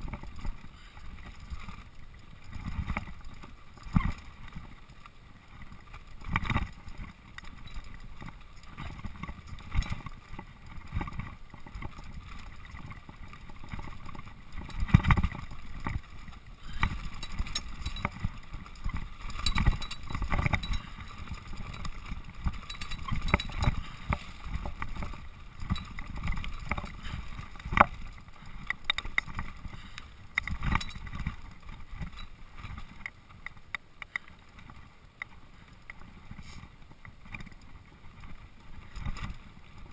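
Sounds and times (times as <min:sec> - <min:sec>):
bike rattling and knocking on bumps: 0:00.0 - 0:39.9
bike tyres rolling over dirt: 0:00.0 - 0:39.9.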